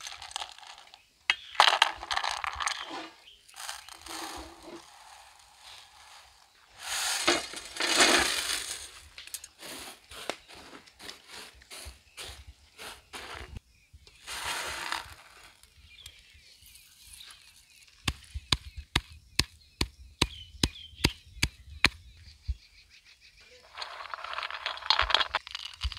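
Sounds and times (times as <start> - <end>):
dry spices poured onto steel plate: 0.0 - 1.0, 1.6 - 8.9, 23.7 - 25.9
seeds clicking on metal plate: 0.0 - 9.6, 23.7 - 25.9.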